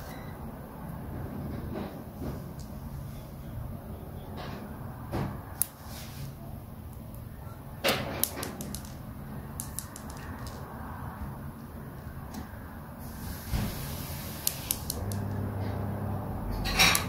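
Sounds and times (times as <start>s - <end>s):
steady low hum: 0.0s - 17.0s
plastic toy pieces clicking: 8.2s - 10.7s.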